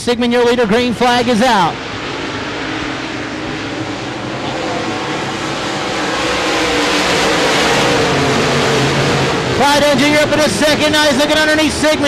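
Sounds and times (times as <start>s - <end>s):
race car engines running hard: 0.0s - 12.0s.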